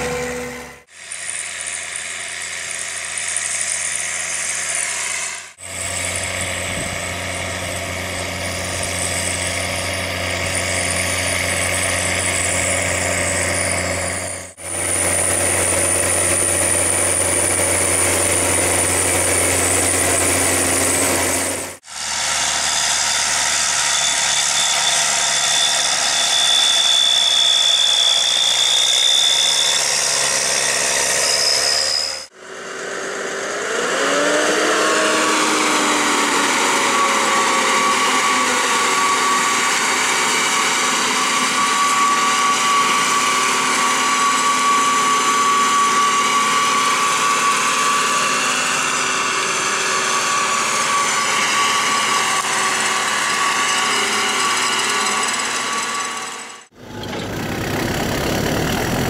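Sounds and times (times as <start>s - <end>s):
tractor diesel engine running: 0.0s - 31.5s, 32.3s - 59.0s
tractor engine revving with whine: 0.0s - 59.0s.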